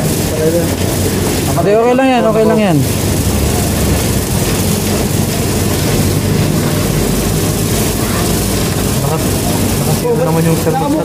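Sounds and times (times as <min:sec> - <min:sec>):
even hiss: 0:00.0 - 0:11.0
low mechanical rumble: 0:00.0 - 0:11.0.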